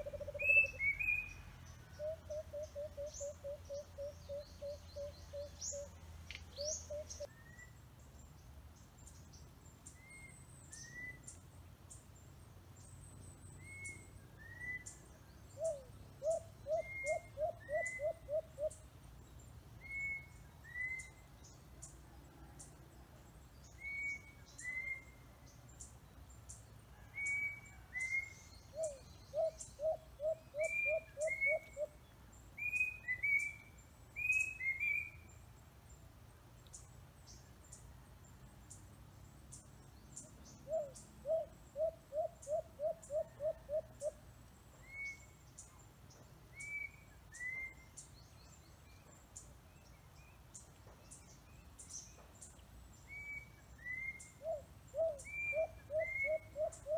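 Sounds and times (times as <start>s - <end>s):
birds whistling: 0.0s - 1.4s, 27.2s - 31.9s, 32.6s - 35.2s, 53.1s - 56.9s
faint high ticks: 6.2s - 6.6s.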